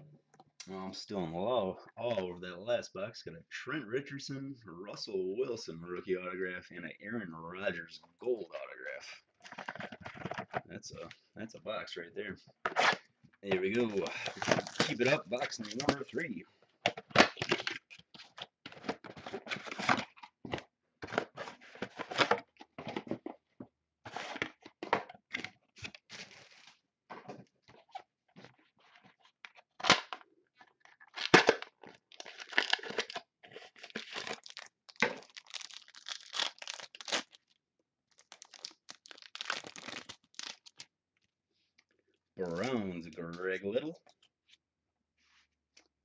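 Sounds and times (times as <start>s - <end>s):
wrappers tearing and crinkling: 31.0s - 40.8s.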